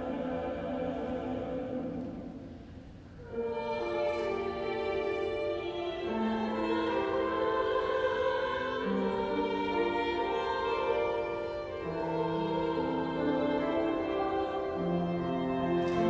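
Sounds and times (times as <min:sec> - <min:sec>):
choir singing slow anthem: 0:00.0 - 0:16.0
piano: 0:00.0 - 0:16.0
violin: 0:03.2 - 0:16.0.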